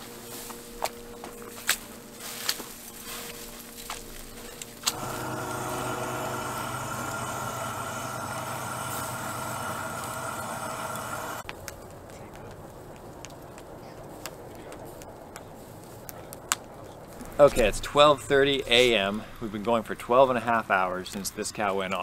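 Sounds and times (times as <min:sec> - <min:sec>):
motor running steadily: 0:04.9 - 0:11.4.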